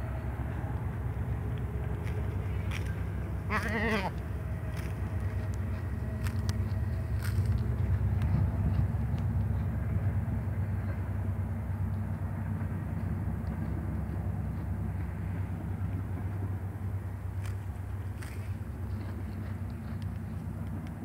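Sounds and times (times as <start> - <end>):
low rumble: 0.0 - 21.0
goat chewing grass: 1.8 - 9.7, 13.6 - 21.0.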